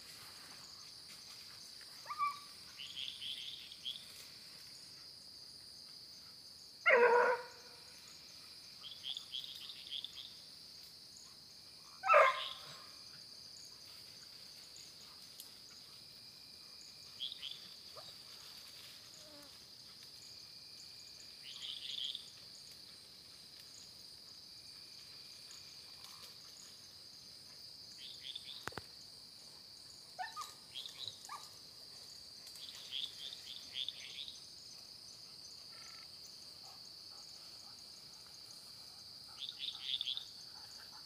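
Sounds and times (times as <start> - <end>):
night insects chirring: 0.0 - 41.0
dog yelping barks: 2.1 - 2.4, 6.9 - 7.6, 12.0 - 12.6, 30.2 - 30.6.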